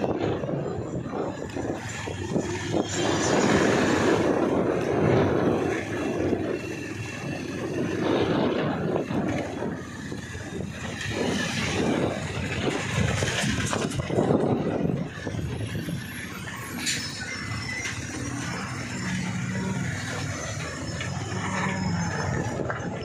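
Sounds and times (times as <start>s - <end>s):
wind buffeting microphone: 0.0s - 23.0s
motorcycle engine: 17.4s - 23.0s.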